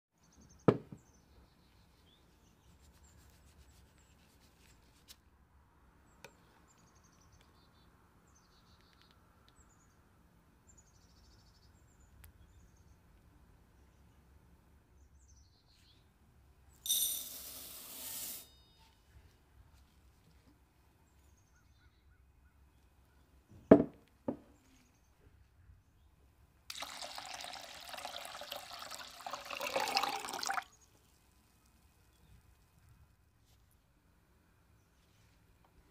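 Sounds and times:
lentils poured into glass bowl: 26.7s - 30.6s.

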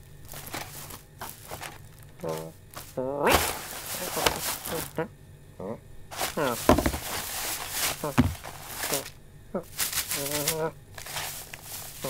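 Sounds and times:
grocery bag rustling: 0.0s - 5.1s, 6.1s - 12.0s
box thudding on floor: 3.3s - 4.7s, 6.2s - 7.3s, 8.0s - 8.6s.

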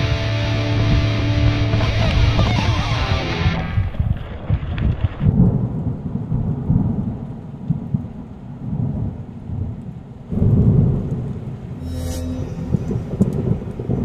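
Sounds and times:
rolling thunder rumbling: 3.8s - 11.8s, 12.7s - 14.0s.

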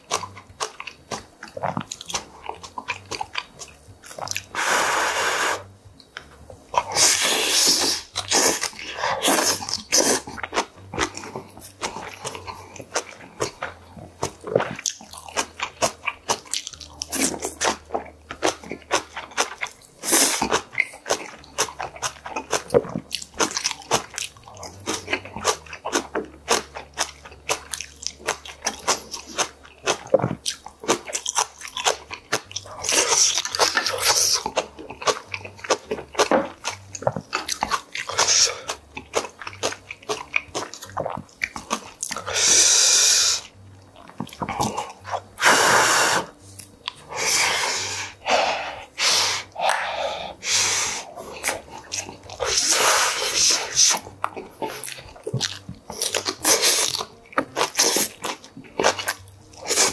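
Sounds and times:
crunchy chewing: 0.0s - 59.9s
mouth clicks: 44.2s - 59.9s.

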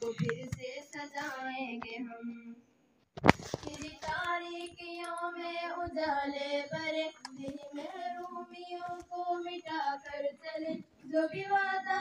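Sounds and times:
children singing over loudspeaker: 3.5s - 12.0s.

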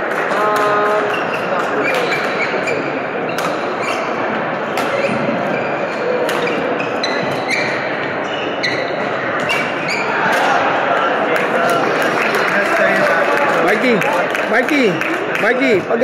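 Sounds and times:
shoes squeaking on wooden court: 0.6s - 10.5s
rackets hitting shuttlecock: 3.3s - 3.8s, 4.6s - 5.4s, 6.2s - 7.6s.

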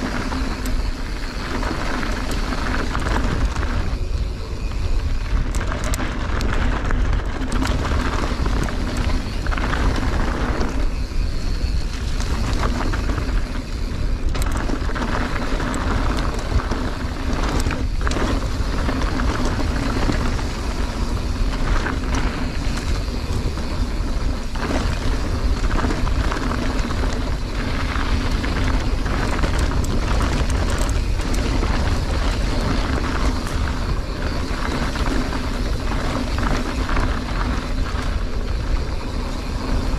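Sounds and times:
bike rattling over bumps: 0.0s - 39.9s
bike tyres rumbling on dirt: 0.0s - 39.9s
wind buffeting microphone: 0.0s - 39.9s.

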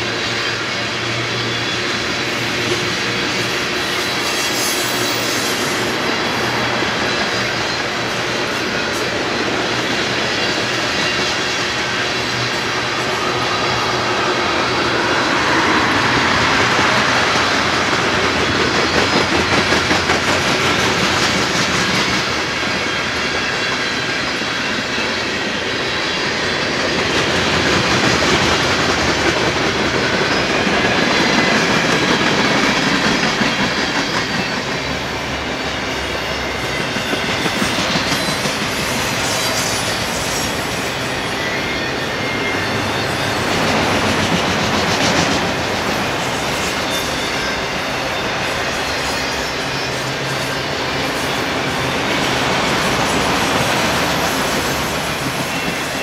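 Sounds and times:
freight train rolling past: 0.0s - 56.0s
steel wheels clicking over rail joints: 15.9s - 35.4s.

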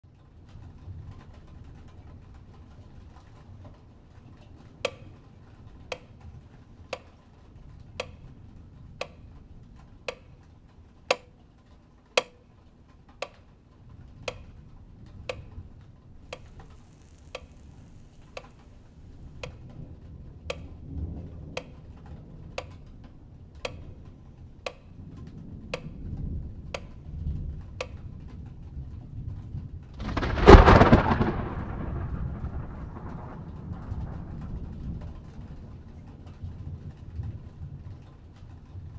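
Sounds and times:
metronome ticking: 8.0s - 8.3s, 8.9s - 9.3s, 10.0s - 10.4s, 11.1s - 11.4s, 12.2s - 12.5s, 13.2s - 13.5s, 14.2s - 14.6s, 15.3s - 15.6s, 16.3s - 19.6s, 20.5s - 20.8s, 23.6s - 24.0s, 24.6s - 25.0s
low rumble: 30.0s - 35.7s.

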